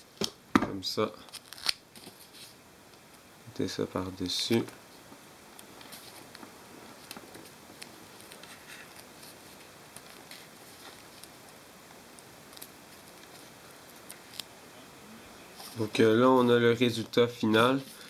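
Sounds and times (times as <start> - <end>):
tape crinkling and clicking: 1.2 - 3.2, 4.4 - 14.5.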